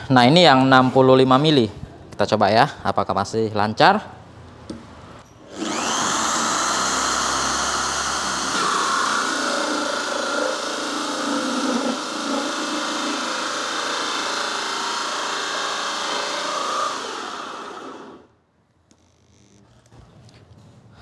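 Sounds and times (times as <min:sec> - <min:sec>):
electric drill motor whine: 0:05.4 - 0:18.3
hole saw rasping through wood: 0:05.6 - 0:18.2.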